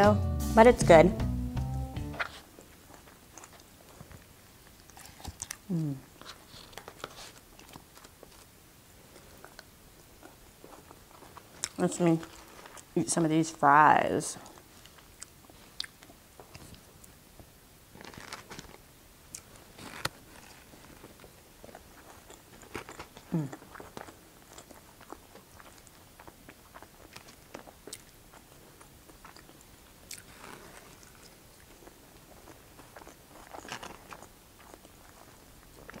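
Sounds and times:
chewing and biting food: 0:02.6 - 0:08.5, 0:18.0 - 0:36.0.

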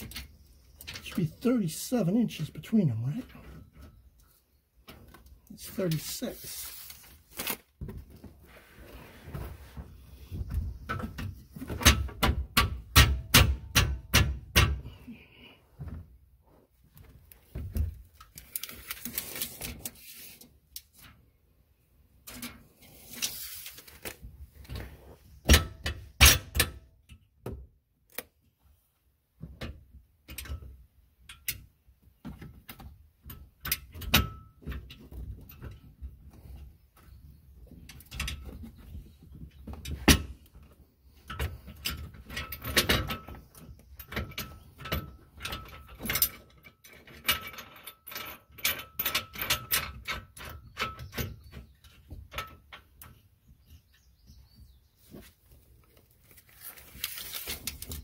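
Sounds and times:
rustling: 0:04.2 - 0:10.7, 0:16.4 - 0:20.6, 0:22.6 - 0:25.4, 0:55.0 - 0:58.0
knocks and clicks on metal: 0:11.8 - 0:14.9.

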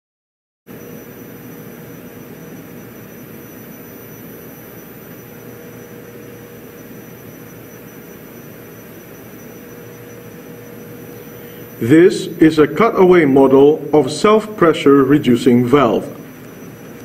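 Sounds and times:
faint hum tone: 0:00.7 - 0:17.0
background hiss: 0:10.8 - 0:17.0.

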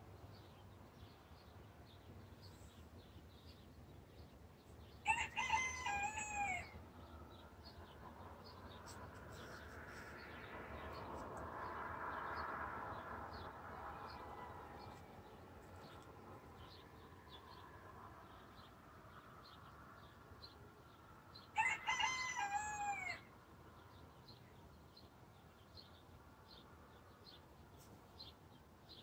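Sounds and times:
small birds chirping: 0:00.0 - 0:12.5
rooster crowing: 0:05.0 - 0:06.8, 0:21.6 - 0:23.3
distant rushing noise: 0:06.9 - 0:17.2.

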